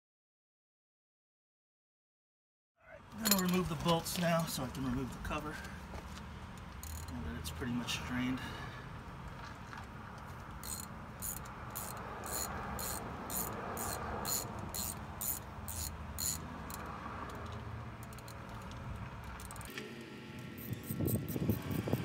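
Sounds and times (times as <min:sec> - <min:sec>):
ratchet wrench clicking: 0:06.8 - 0:07.2, 0:10.4 - 0:19.8, 0:20.6 - 0:22.0.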